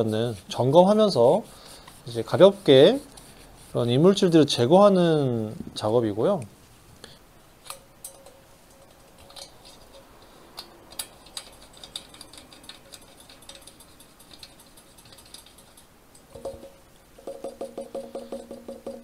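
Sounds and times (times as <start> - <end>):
light scraping of metal valve parts: 7.6 - 16.6
trumpet valve parts clicking: 7.6 - 17.5.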